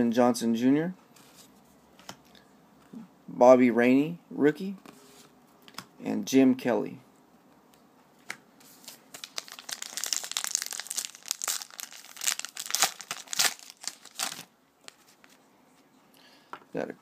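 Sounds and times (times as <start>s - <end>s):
card pack wrapper crinkling and tearing: 8.7s - 15.2s.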